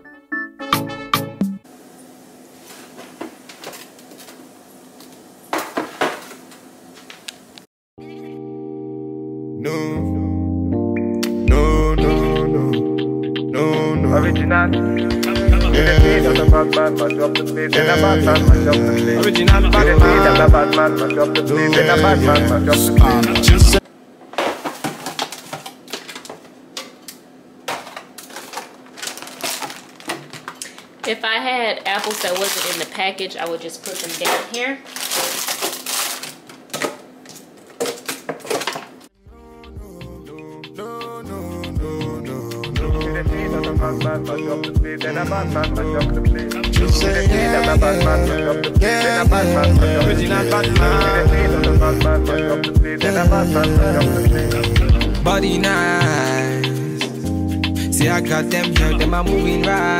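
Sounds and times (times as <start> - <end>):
plastic bag crinkling: 24.4 - 26.5, 27.7 - 39.1.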